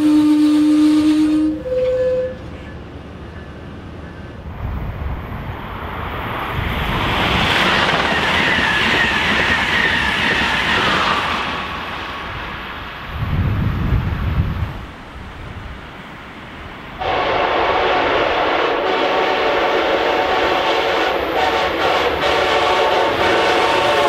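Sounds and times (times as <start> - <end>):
train horn: 0.0 - 2.8, 17.0 - 24.0
passing train rumble: 0.0 - 24.0.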